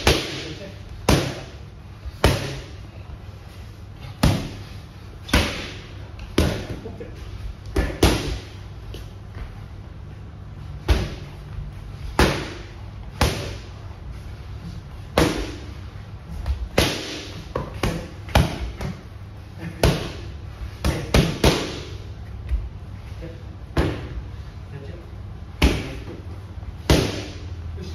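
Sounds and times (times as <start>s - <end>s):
boxing gloves smacking mitts: 26.8s - 27.4s.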